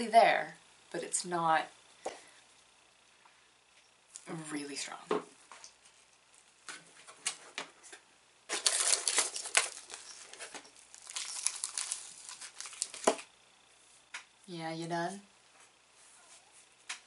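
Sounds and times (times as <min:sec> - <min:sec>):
plastic wrapper crinkling: 0:08.5 - 0:13.3.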